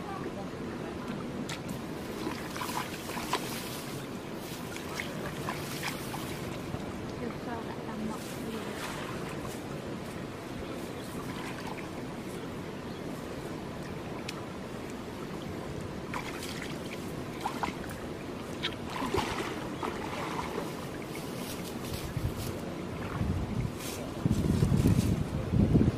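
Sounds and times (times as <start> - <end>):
splashes and rustles of mud: 1.0 - 7.3, 8.1 - 9.8, 16.1 - 25.3
steady rushing hiss: 1.7 - 16.1, 20.5 - 23.0.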